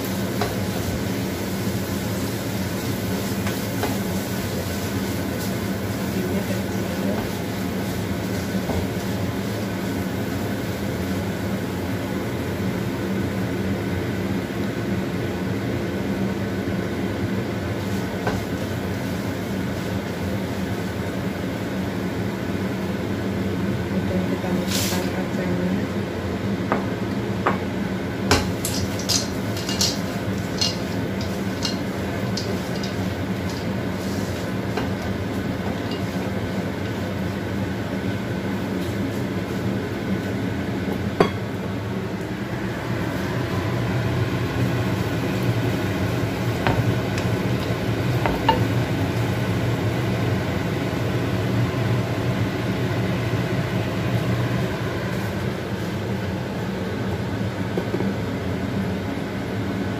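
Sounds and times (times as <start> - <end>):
steady hum: 0.0 - 59.9
spatula scraping wok: 28.4 - 37.4.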